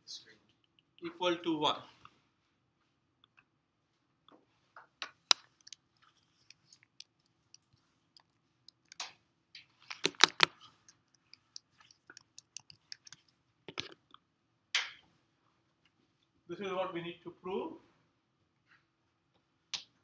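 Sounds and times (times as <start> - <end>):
small clicks and taps: 5.0 - 9.1, 9.9 - 14.1.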